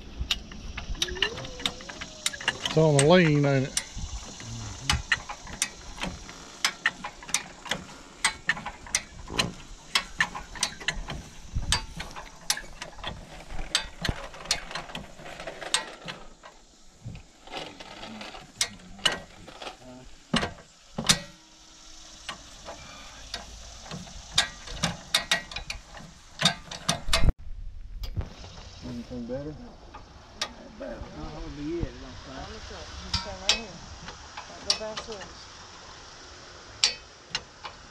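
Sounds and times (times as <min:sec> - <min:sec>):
jack pawls ratcheting clicks: 0:00.2 - 0:15.1.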